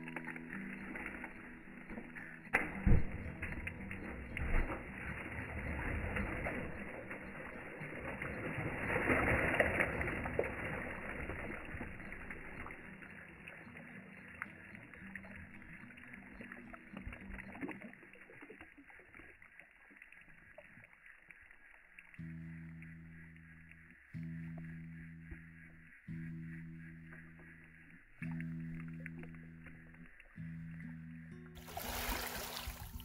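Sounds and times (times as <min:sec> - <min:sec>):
music: 0:00.0 - 0:05.2, 0:22.2 - 0:33.0
water splashing and churning: 0:00.0 - 0:20.9, 0:31.6 - 0:33.0.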